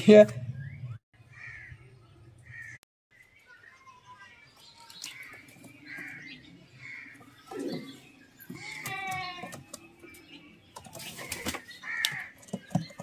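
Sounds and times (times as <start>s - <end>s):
pigeons cooing: 5.5s - 13.0s.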